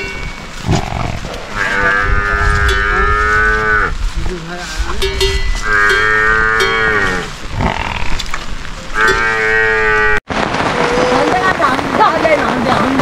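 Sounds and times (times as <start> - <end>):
cow mooing: 0.7 - 4.0, 5.6 - 8.2, 8.9 - 10.2.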